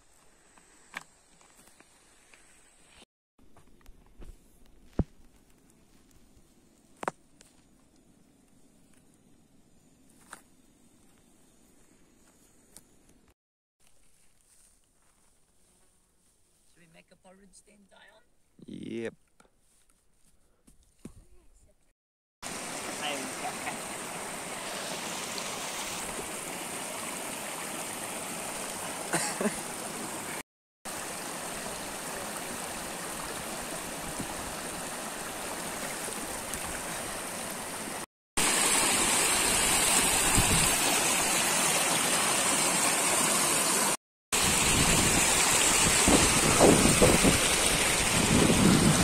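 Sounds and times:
stream rushing over rocks: 22.4 - 49.0.

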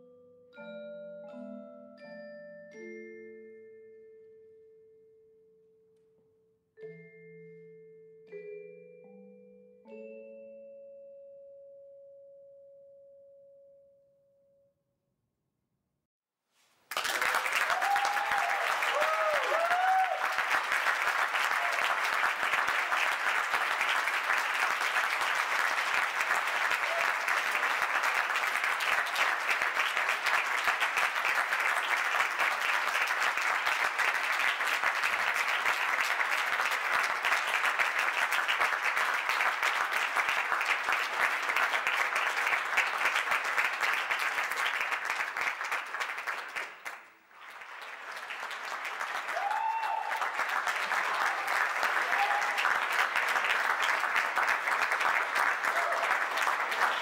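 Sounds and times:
audience applauding: 16.8 - 57.0.

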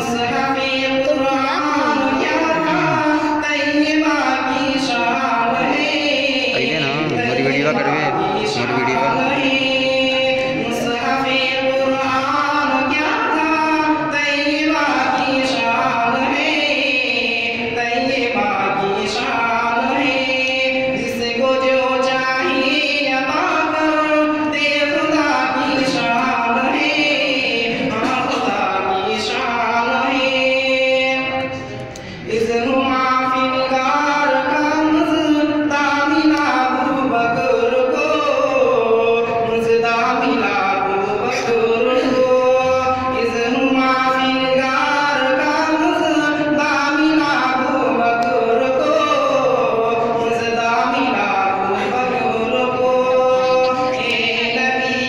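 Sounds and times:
man chanting into a microphone: 0.0 - 55.0.

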